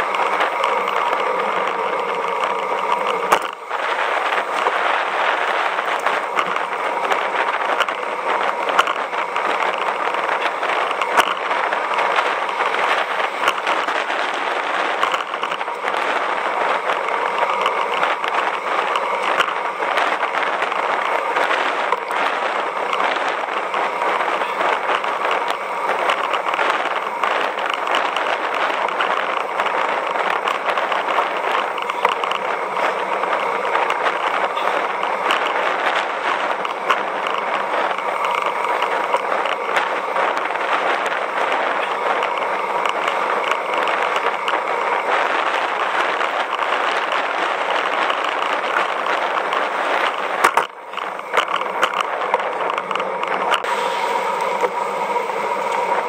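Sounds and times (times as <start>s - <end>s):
bike clicks from bumps: 0.0s - 53.8s
tyre and wind rush: 0.0s - 56.0s.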